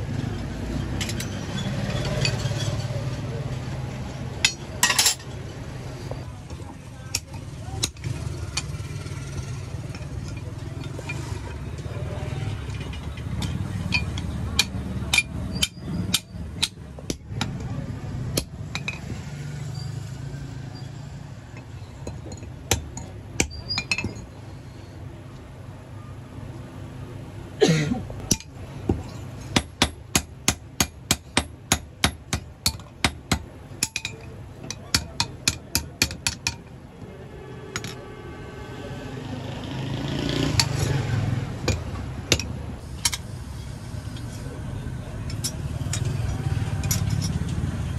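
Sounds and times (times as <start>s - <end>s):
hammer striking metal on anvil: 13.9s - 17.7s, 28.3s - 29.0s.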